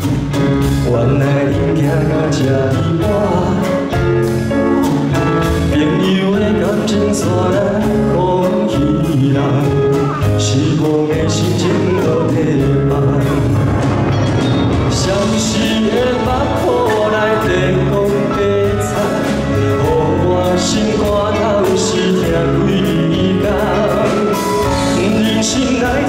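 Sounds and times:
live band playing pop ballad: 0.0 - 26.0.

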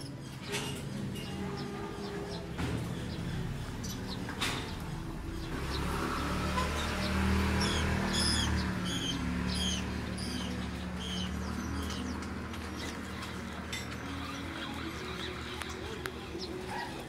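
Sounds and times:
small bird chirping: 5.4 - 17.0.

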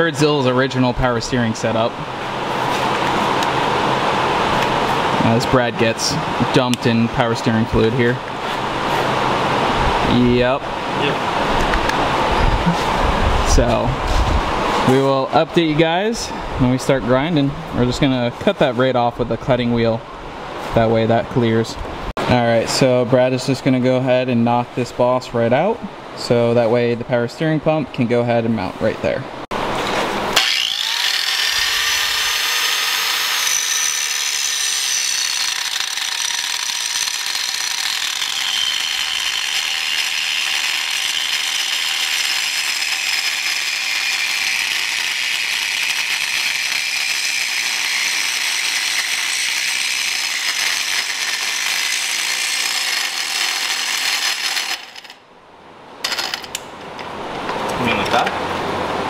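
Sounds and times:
angle grinder cutting metal: 30.3 - 55.2.

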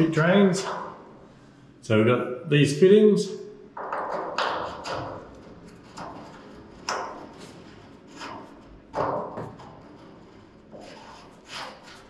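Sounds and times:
knocks and scrapes of fittings: 3.8 - 12.0.

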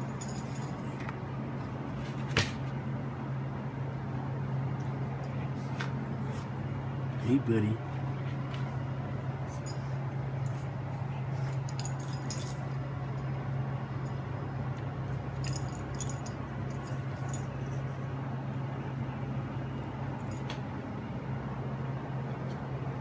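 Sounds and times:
collar metal jingling: 0.0 - 0.9, 11.6 - 13.4, 14.8 - 18.0
steady low hum: 0.0 - 23.0.

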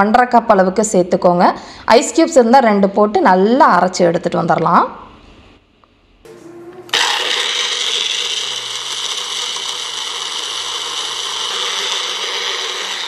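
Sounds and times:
mixer grinder running at high speed: 6.3 - 13.0.

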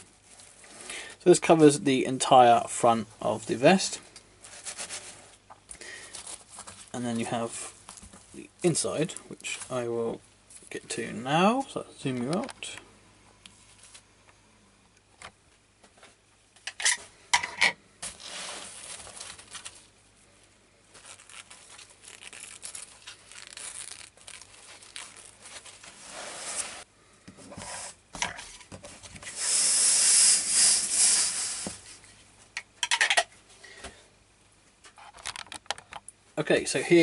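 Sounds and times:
fabric rustling and tearing: 18.0 - 20.0, 20.9 - 26.9.

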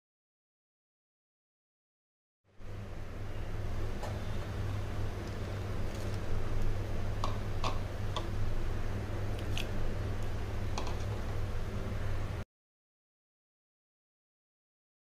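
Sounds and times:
steady low hum: 2.5 - 12.4.

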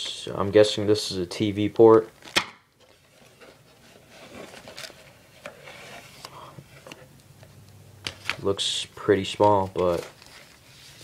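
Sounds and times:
plastic wrapping rustling: 1.8 - 6.3, 9.2 - 11.0.

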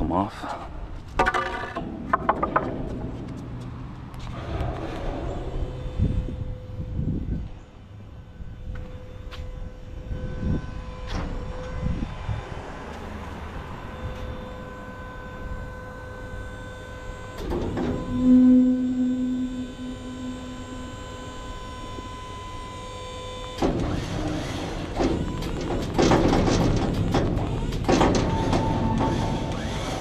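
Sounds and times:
rough mechanical noise: 0.4 - 7.8, 8.7 - 30.0
hydraulic pump whining: 13.0 - 30.0
low groan: 17.7 - 22.6.

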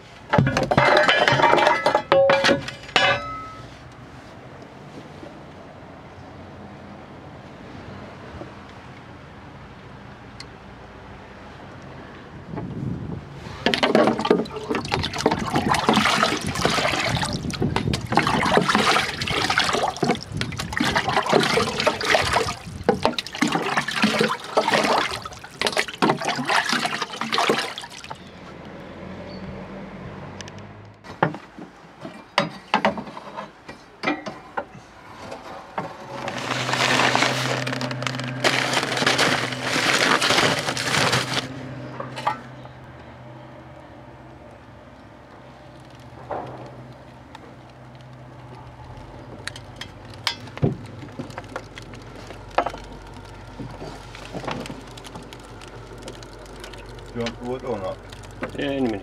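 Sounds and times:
clicks and knocks: 0.3 - 3.6
water splashing and pouring: 13.6 - 28.3, 36.1 - 41.5, 50.2 - 59.0.

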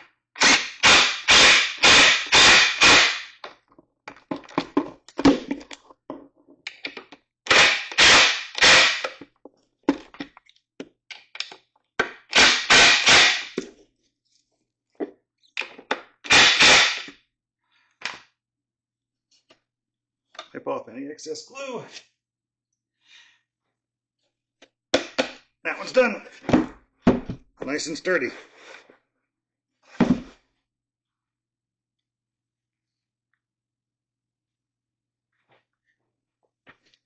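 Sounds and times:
impact driver driving screws: 0.4 - 3.5, 7.5 - 9.2, 12.3 - 13.6, 16.3 - 17.1.

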